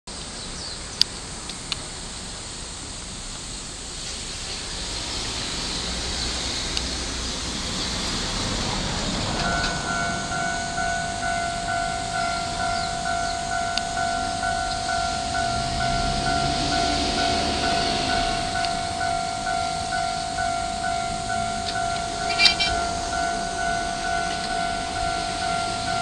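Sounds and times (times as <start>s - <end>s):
steady hiss: 0.1s - 26.0s
level crossing alarm bell: 8.1s - 26.0s.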